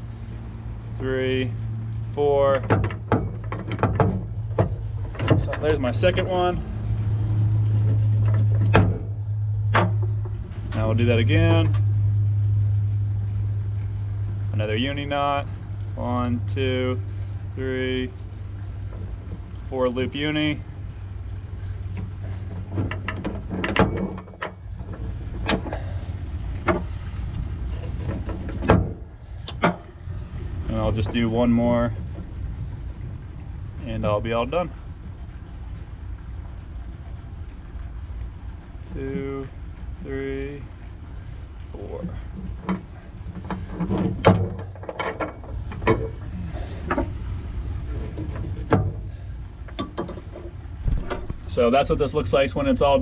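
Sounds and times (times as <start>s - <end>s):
steady low hum: 0.0s - 53.0s
steady low rumble: 0.0s - 53.0s
chain clinking on metal boat: 2.0s - 6.8s, 21.4s - 34.8s, 40.6s - 53.0s.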